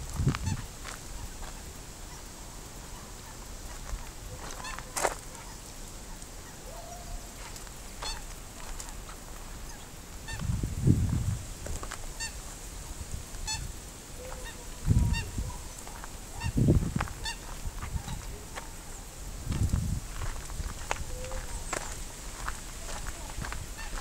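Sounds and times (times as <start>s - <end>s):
geese honking: 1.2s - 10.4s, 12.2s - 12.5s, 13.4s - 18.8s, 23.8s - 24.0s.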